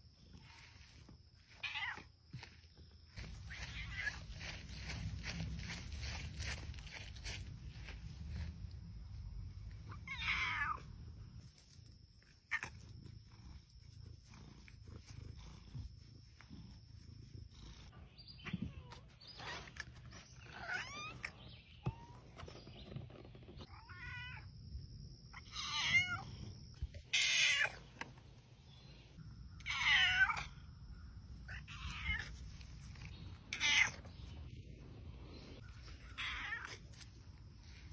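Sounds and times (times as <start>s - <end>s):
cat meowing: 3.4s - 4.3s, 9.9s - 10.9s, 23.6s - 24.5s, 25.4s - 26.3s, 29.6s - 30.6s, 33.5s - 34.1s, 36.0s - 36.9s.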